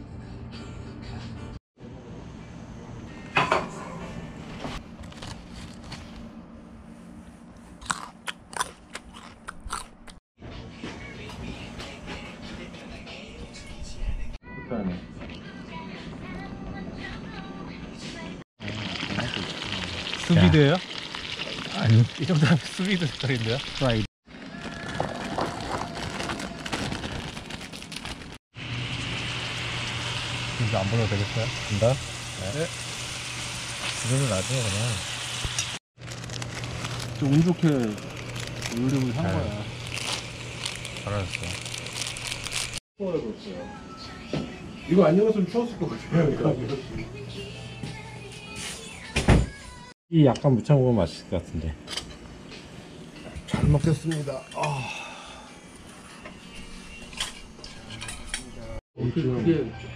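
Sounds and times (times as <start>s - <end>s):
food sizzling in a pan: 18.6s - 24.1s, 28.6s - 35.8s
plastic bag crinkling: 24.6s - 28.4s, 36.0s - 42.8s
camp stove hiss and hum: 28.6s - 41.9s.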